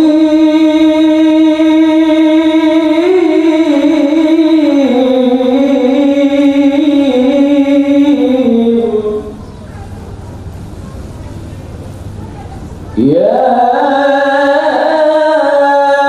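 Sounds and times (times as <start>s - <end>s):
man chanting: 0.0s - 9.4s, 13.0s - 16.0s.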